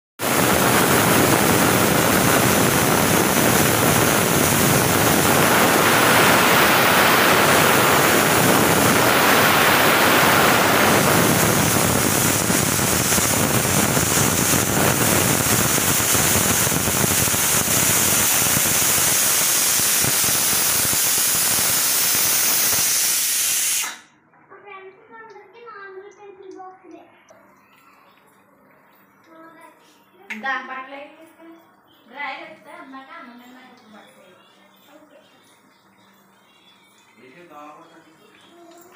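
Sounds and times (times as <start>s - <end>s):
pressure cooker whistling: 0.2s - 24.1s.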